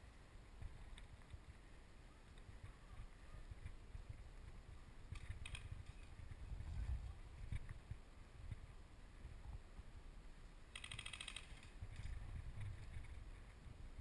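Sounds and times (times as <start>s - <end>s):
wind rumble: 0.0s - 10.7s, 11.5s - 14.0s
sharp clicks: 10.7s - 13.2s.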